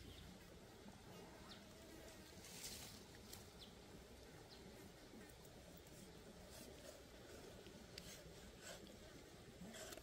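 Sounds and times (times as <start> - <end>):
soft faint rasp: 4.8 - 10.0.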